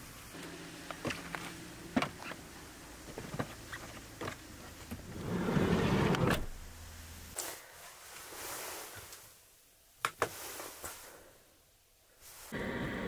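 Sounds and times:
sliding door rolling shut: 5.0s - 6.6s.

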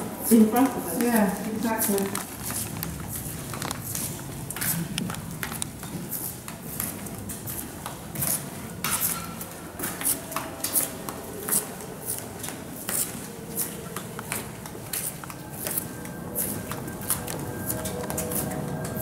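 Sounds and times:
footsteps on stone paving: 0.3s - 19.0s.

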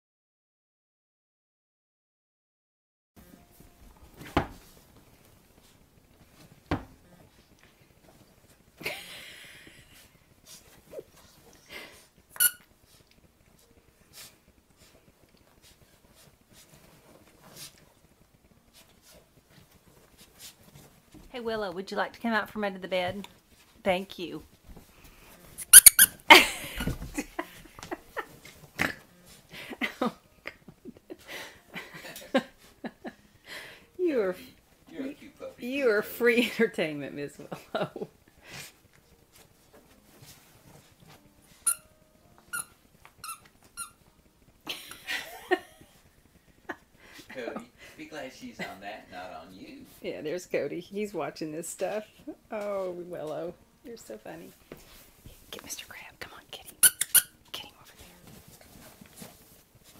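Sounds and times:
puppy scuffling in dog bed: 12.8s - 18.0s, 18.7s - 21.3s, 26.7s - 29.5s, 38.6s - 42.5s, 57.8s - 59.9s.

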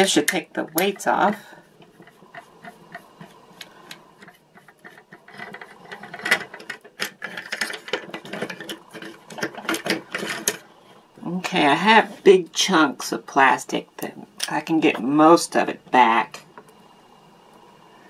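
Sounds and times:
plastic toy parts clicking and rattling: 3.9s - 10.6s.

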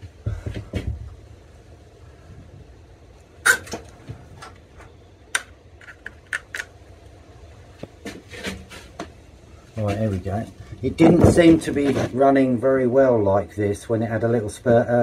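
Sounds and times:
low thumps: 10.7s - 12.2s.

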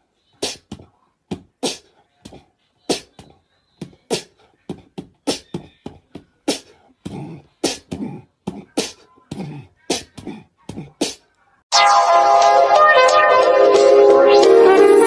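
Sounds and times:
person beatboxing: 0.4s - 11.3s.

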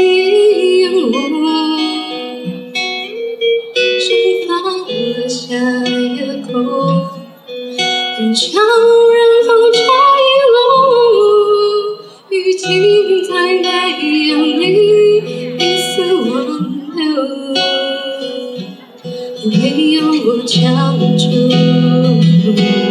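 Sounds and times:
acoustic guitar: 0.0s - 22.9s
woman singing: 0.0s - 22.9s.

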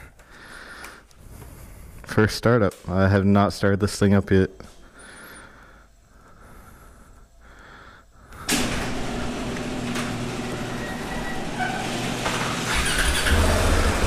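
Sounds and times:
garage door opener running: 8.4s - 14.0s
motorcycle engine starting and idling: 8.4s - 14.0s.

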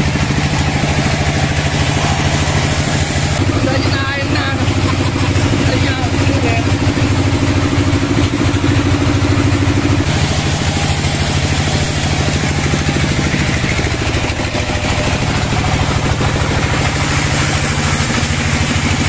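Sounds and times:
engine idling with rapid chugging: 0.0s - 19.0s.

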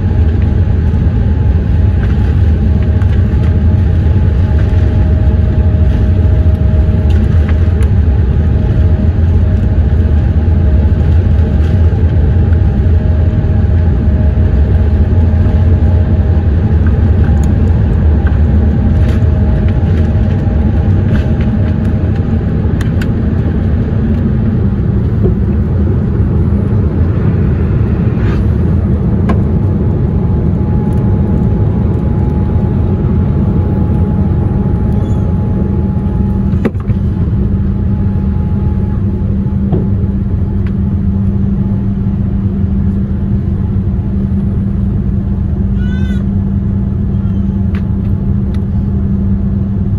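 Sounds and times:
jet engines roaring: 0.0s - 49.9s.

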